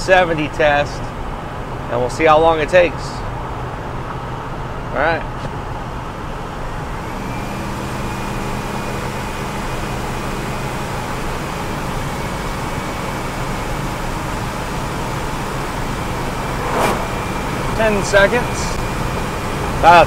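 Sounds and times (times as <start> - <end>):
diesel engine pulling hard: 0.0 - 20.0
faint high whine: 15.3 - 19.2.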